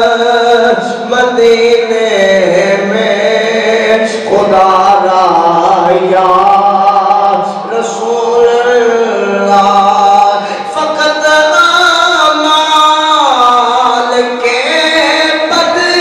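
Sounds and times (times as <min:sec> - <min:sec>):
man chanting: 0:00.0 - 0:16.0.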